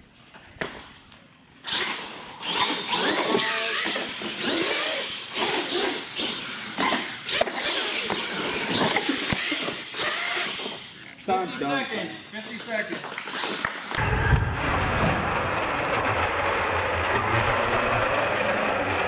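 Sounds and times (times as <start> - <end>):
toy truck motor whining: 1.6 - 11.1, 13.2 - 14.0.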